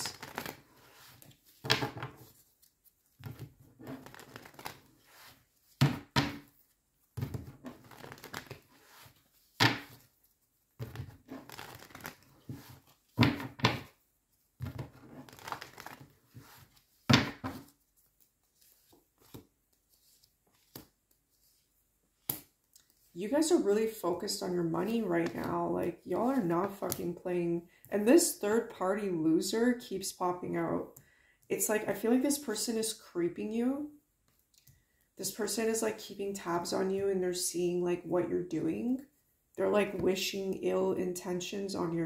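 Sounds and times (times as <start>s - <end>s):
cards shuffling: 0.0s - 13.9s, 14.6s - 23.1s.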